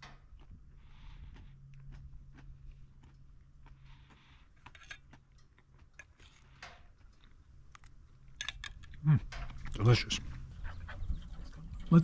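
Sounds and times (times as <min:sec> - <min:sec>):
person chewing biscuit: 0:00.0 - 0:10.6.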